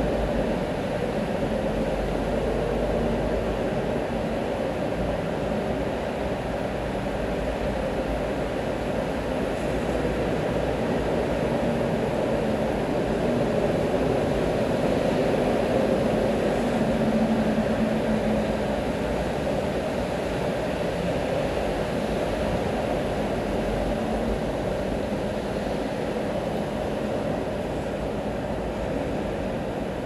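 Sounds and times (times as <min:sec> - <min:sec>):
traffic on wet street: 0:00.0 - 0:30.0.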